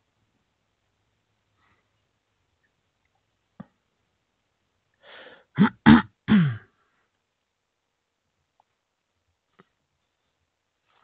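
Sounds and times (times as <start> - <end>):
person clearing throat: 5.6 - 6.7.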